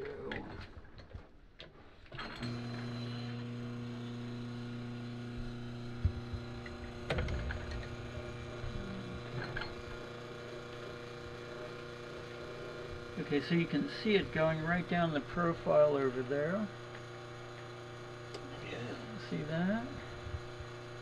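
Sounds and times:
espresso machine hum: 2.4 - 21.0
machine clunk: 6.6 - 8.2, 9.3 - 10.0.

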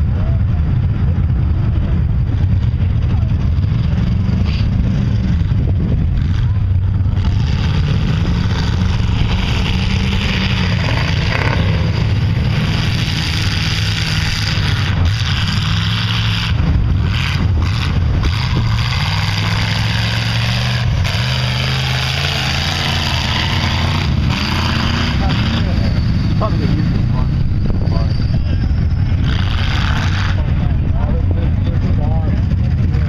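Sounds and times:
truck engine revving: 0.0 - 33.0.

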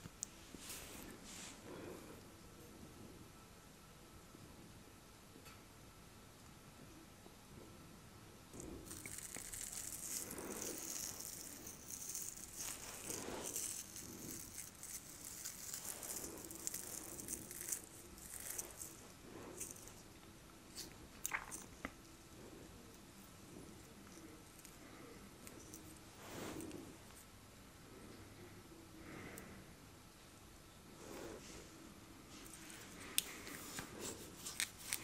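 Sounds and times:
fingernails scratching beard: 8.9 - 20.0.

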